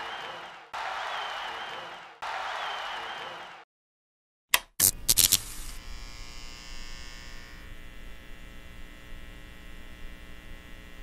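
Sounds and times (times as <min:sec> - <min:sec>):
electrical hum and buzz: 0:04.8 - 0:11.0.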